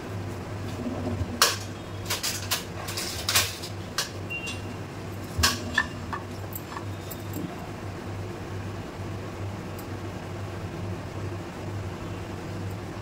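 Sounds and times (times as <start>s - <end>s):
low steady hum: 0.0s - 13.0s
plates and spatula clattering: 5.3s - 7.5s.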